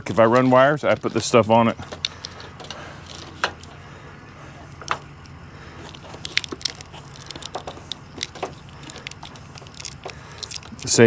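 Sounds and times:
plastic wire loom crackling: 0:05.8 - 0:11.0.

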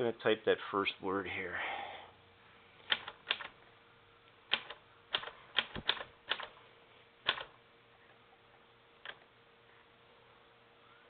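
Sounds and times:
typewriter typebar strikes: 0:04.5 - 0:06.5, 0:07.2 - 0:07.5.

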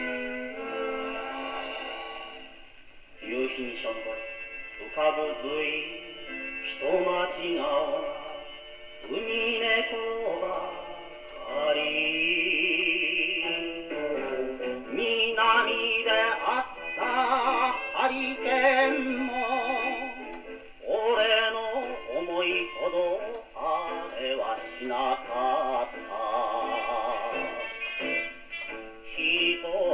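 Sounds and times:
popular song on a gramophone: 0:00.0 - 0:29.9.

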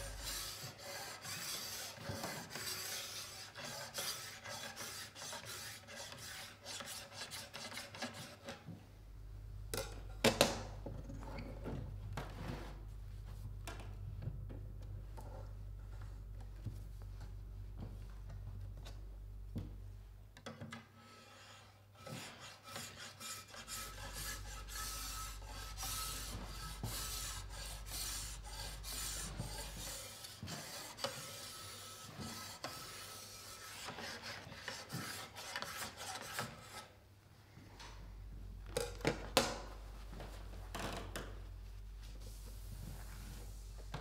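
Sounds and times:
metal file rasping on steel edge: 0:00.0 - 0:08.4, 0:21.0 - 0:36.9.

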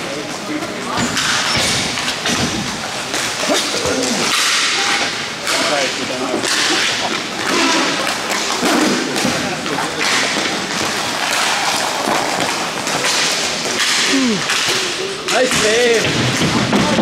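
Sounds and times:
players' voices: 0:00.0 - 0:17.0
sticks striking puck: 0:00.9 - 0:17.0
skates scraping on ice: 0:05.7 - 0:17.0.

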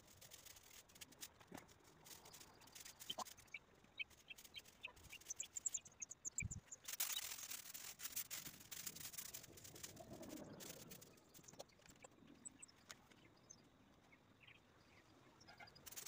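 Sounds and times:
small bird chirping: 0:01.9 - 0:16.0.

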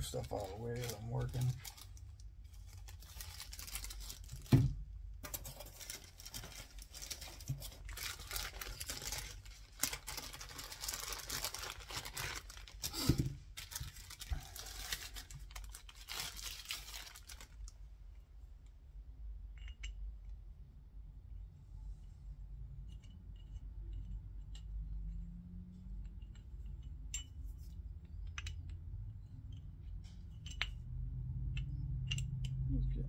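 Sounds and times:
crinkling handling noise: 0:00.0 - 0:17.8.

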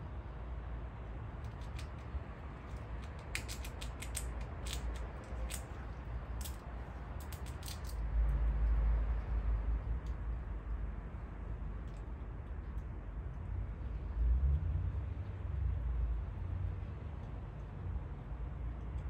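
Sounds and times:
steady low rumble: 0:00.0 - 0:19.0
small sharp clicks: 0:01.4 - 0:05.8.

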